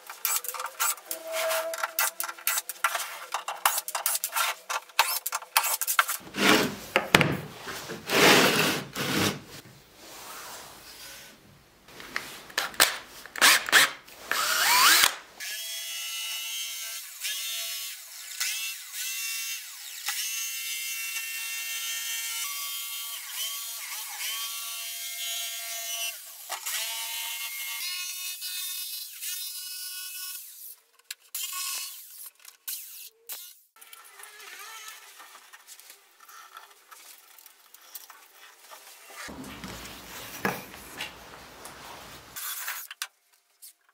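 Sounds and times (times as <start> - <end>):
jigsaw cutting hardboard: 2.0 - 7.3, 8.0 - 9.5, 13.4 - 15.2.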